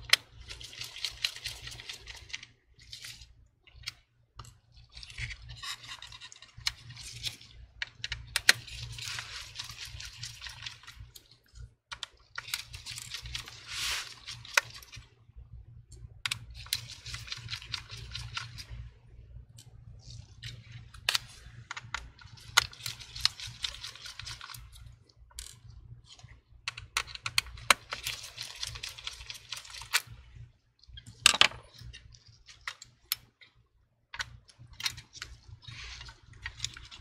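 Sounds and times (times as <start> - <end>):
gloved hands rubbing: 13.0 - 15.0.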